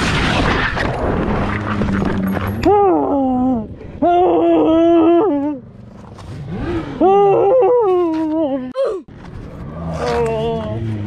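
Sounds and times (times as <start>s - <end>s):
man groaning in pain: 6.6s - 9.1s.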